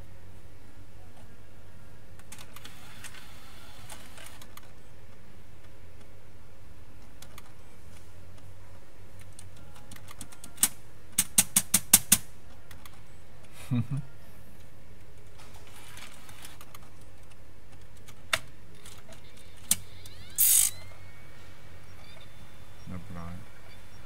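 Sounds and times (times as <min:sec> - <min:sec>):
low steady hum: 0:00.0 - 0:11.4, 0:12.2 - 0:24.0.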